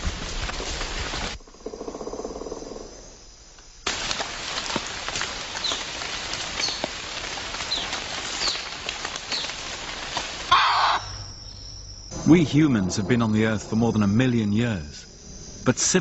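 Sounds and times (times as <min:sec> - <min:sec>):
rain-like hiss with ticks: 0:00.0 - 0:12.2.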